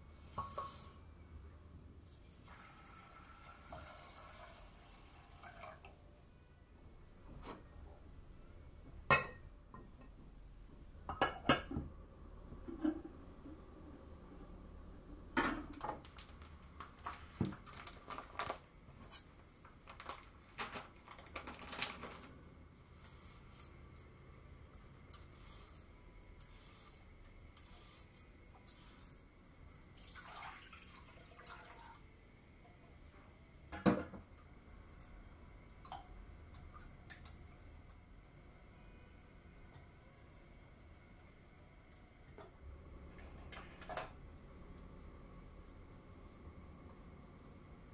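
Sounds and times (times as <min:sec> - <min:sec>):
cookware and utensils clinking: 0:43.1 - 0:44.2.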